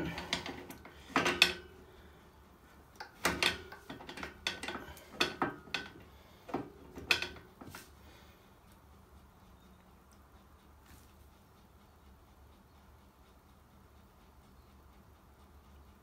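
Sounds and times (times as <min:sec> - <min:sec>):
metal spanner clinking on nut: 0:00.1 - 0:01.6.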